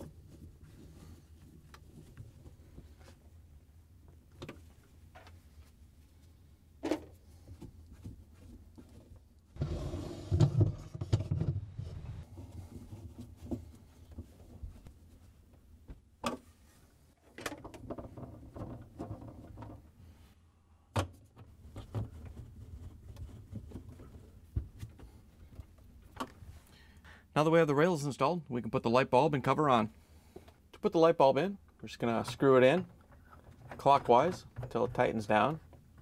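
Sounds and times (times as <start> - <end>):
plastic rubbing and knocking: 6.8 - 14.9, 17.2 - 19.9, 21.4 - 25.2.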